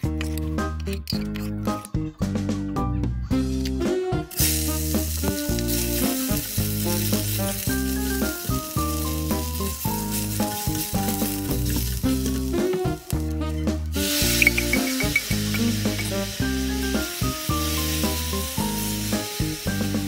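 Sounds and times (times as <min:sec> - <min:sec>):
background music: 0:00.0 - 0:20.0
food sizzling in hot oil: 0:04.3 - 0:20.0.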